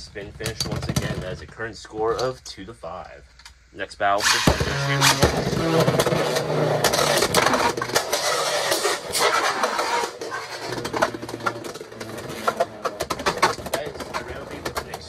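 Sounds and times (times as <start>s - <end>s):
spinning tops grinding scrape: 4.2s - 14.8s.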